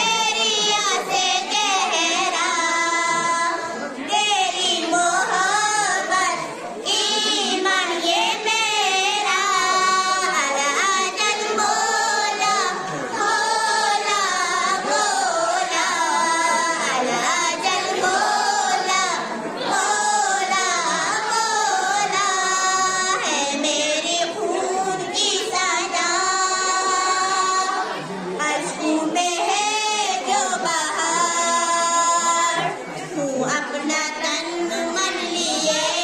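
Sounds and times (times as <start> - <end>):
girls singing into a microphone: 0.0 - 36.0.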